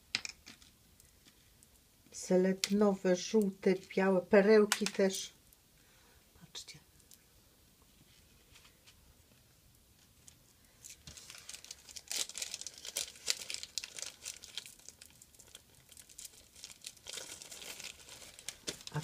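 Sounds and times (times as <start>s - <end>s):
plastic packaging crinkling: 10.2s - 19.0s.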